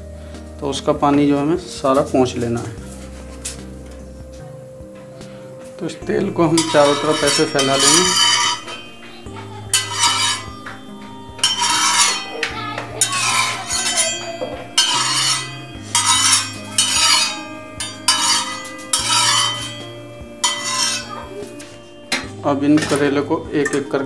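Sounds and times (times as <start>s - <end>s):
steel spatula scraping iron griddle: 6.2s - 23.2s.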